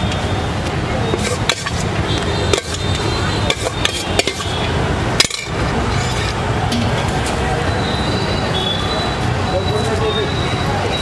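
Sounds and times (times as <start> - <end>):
street traffic: 0.0 - 11.0
spoon clinking on steel bowls: 1.1 - 1.9, 2.5 - 6.9.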